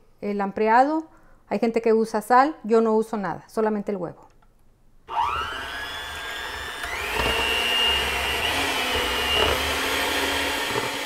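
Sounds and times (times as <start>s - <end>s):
electric mixer motor whining: 5.1s - 11.0s.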